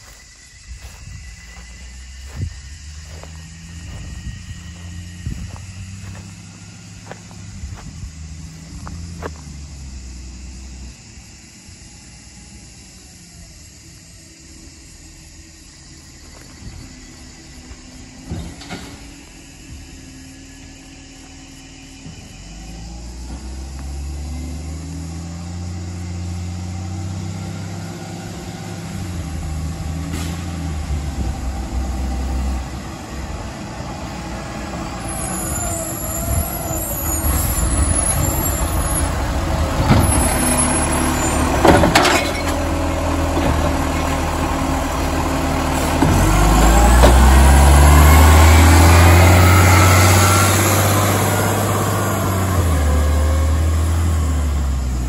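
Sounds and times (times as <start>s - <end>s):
garbage truck diesel engine: 0.0s - 55.0s.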